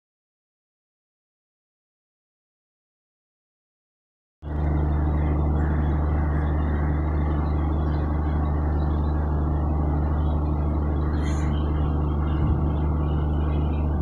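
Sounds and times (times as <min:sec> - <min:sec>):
held low tones: 0:04.4 - 0:14.0
low hum of trains: 0:04.4 - 0:14.0.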